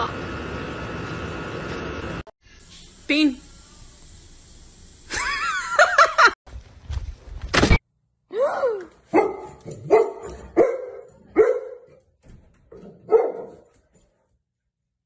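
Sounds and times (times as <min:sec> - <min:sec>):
dog barking: 0:09.1 - 0:12.0, 0:12.7 - 0:13.7.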